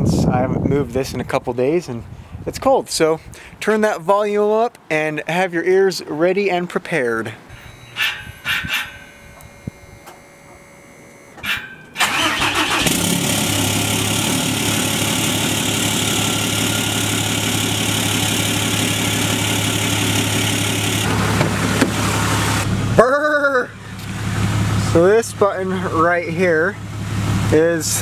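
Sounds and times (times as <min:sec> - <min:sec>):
diesel engine starting and idling: 0:10.8 - 0:28.0.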